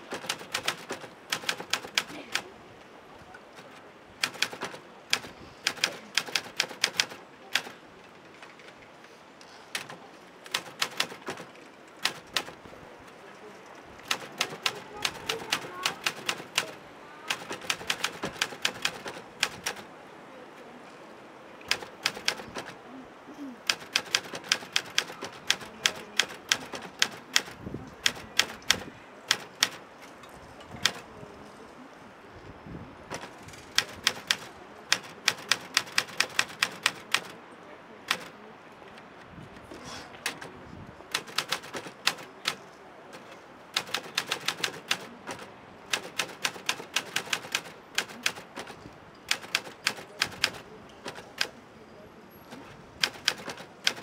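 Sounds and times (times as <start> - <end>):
typewriter key strikes: 0.1 - 2.4, 4.2 - 7.7, 9.7 - 12.6, 14.0 - 19.8, 21.7 - 22.8, 23.6 - 29.8, 33.1 - 37.3, 41.1 - 51.6, 53.0 - 54.0.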